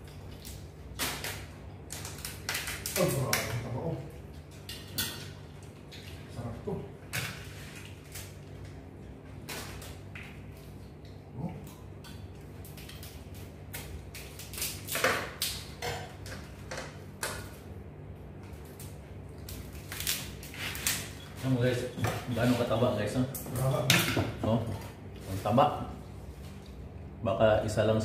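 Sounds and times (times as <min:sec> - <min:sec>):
crab shell cracking: 0:00.1 - 0:03.6.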